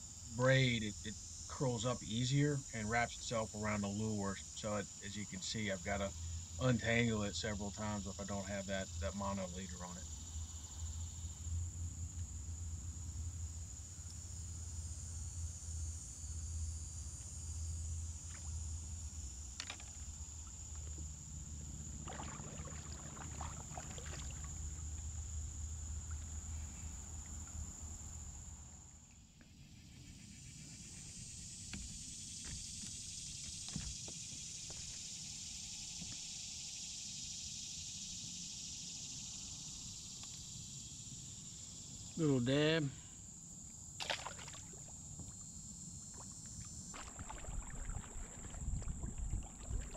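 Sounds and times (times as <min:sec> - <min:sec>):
constant low rumble: 0:00.0 - 0:29.1, 0:44.9 - 0:49.9
high-pitched insect drone: 0:00.0 - 0:49.9.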